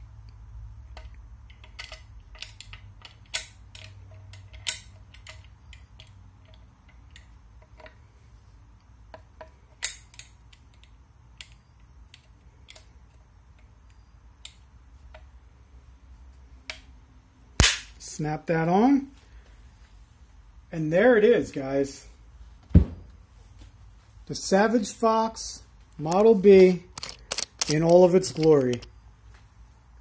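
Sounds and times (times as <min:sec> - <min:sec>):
wood clicking against metal gun parts: 0:00.9 - 0:08.1, 0:08.8 - 0:15.3, 0:25.9 - 0:29.0.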